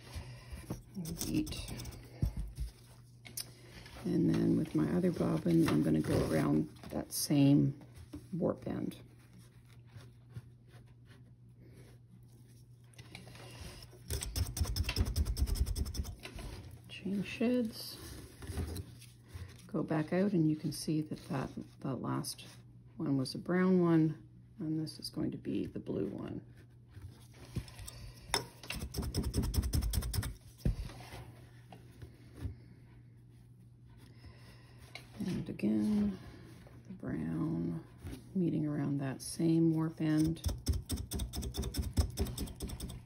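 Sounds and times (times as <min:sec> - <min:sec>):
wooden beater tapping rapidly: 0:40.4 - 0:43.0.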